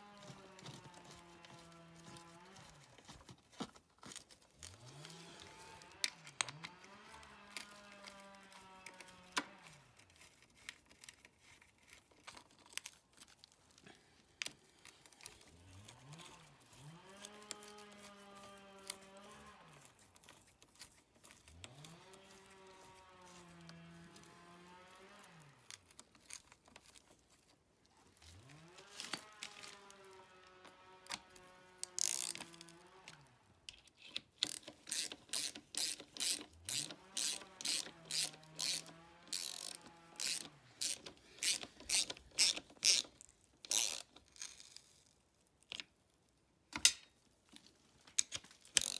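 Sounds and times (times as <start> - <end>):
small metallic clicks: 3.6 - 13.8, 28.8 - 46.0, 46.7 - 48.9
ratchet wrench clicking: 31.8 - 32.6, 34.4 - 44.8.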